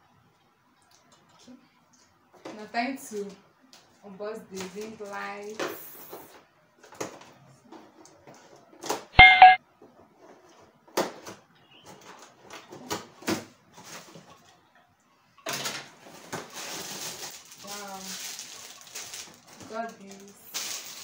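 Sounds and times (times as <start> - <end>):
bright ding: 9.2 - 9.6.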